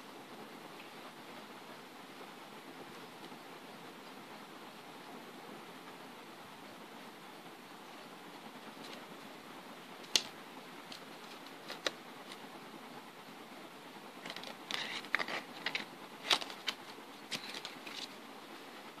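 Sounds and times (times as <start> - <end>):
steady hiss: 0.0 - 19.0
playing cards clicking and rustling: 10.0 - 12.5, 14.2 - 18.2.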